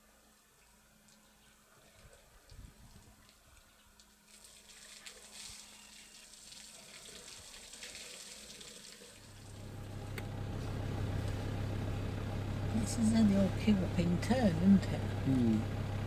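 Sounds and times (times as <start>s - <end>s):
water dripping: 0.6s - 9.5s
water splashing and spilling: 1.9s - 9.6s
low hum: 9.2s - 16.0s.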